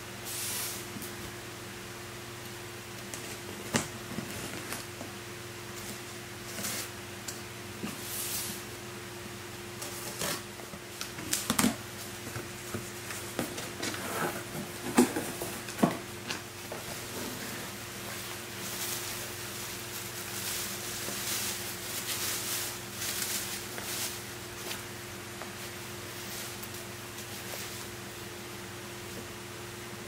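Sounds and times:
steady low hum: 0.0s - 30.0s
packaging rustling: 18.0s - 24.9s.

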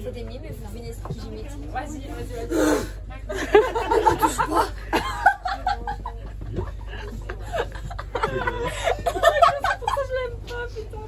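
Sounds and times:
women talking: 0.0s - 11.0s
women laughing and giggling: 3.2s - 10.5s.

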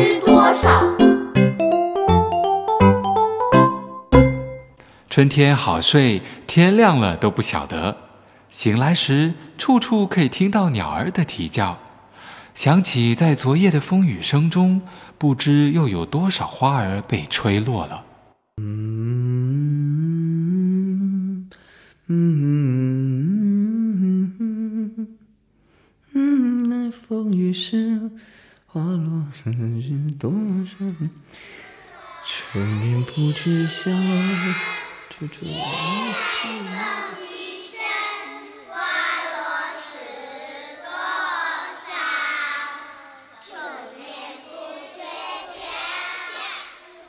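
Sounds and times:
children singing: 0.0s - 1.2s, 30.5s - 47.0s
man humming a melody: 18.6s - 25.3s, 26.1s - 27.2s.

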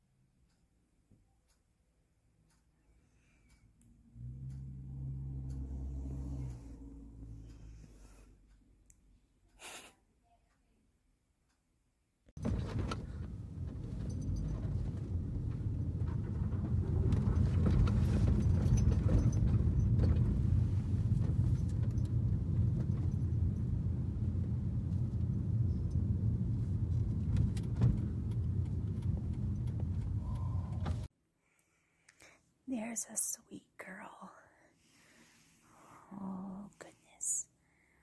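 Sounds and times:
car cabin rumble: 12.4s - 31.1s
small rattles and clicks: 12.4s - 31.1s.

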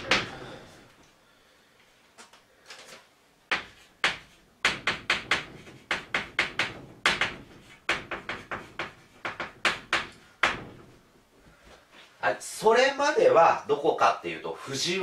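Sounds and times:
chalk tapping on a blackboard: 3.5s - 10.7s.

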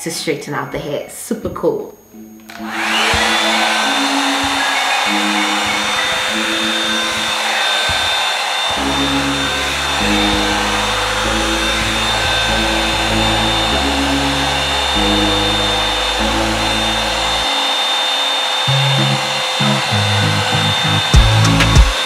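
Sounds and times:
hair dryer brush running: 2.4s - 22.0s
background music with bass line: 8.8s - 17.5s, 18.7s - 22.0s.

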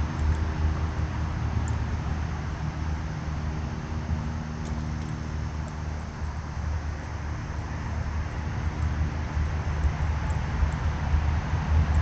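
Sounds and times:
faint high ticks: 0.0s - 0.5s, 1.6s - 1.8s, 4.6s - 6.4s, 8.8s - 10.9s
distant road traffic rumble: 0.0s - 12.0s.

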